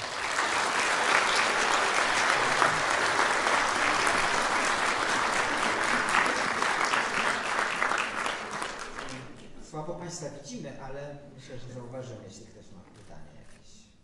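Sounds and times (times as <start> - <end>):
audience applauding: 0.0 - 9.6.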